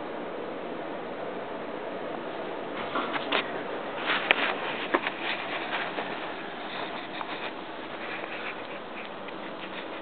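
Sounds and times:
steady hiss: 0:00.0 - 0:10.0
camera handling knocks and rubs: 0:03.0 - 0:10.0.

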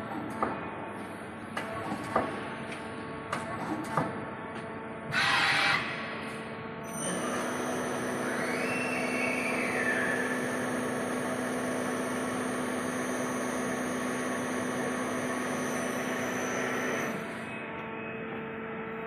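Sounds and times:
high machine whine: 0:04.8 - 0:19.0
lathe machine hum: 0:07.0 - 0:17.8.

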